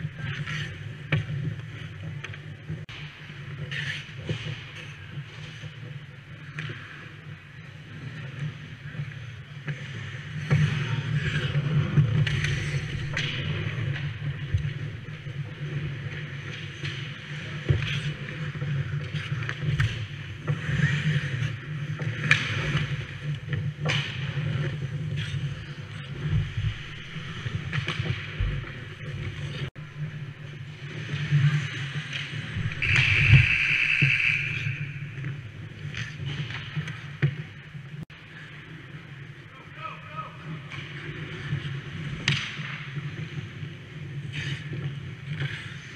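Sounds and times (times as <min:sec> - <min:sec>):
skate blades scraping ice: 0:00.0 - 0:38.0, 0:40.4 - 0:45.9
sticks and pucks knocking: 0:11.9 - 0:16.2
low hum: 0:25.4 - 0:36.0.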